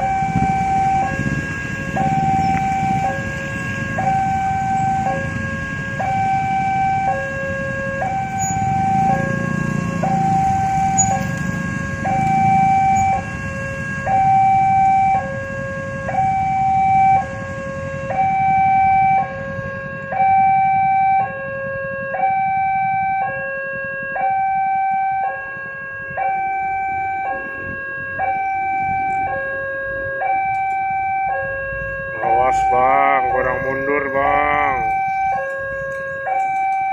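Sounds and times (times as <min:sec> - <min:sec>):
level crossing two-tone alarm: 0:00.0 - 0:36.9
motorcycle engines idling: 0:01.9 - 0:05.5.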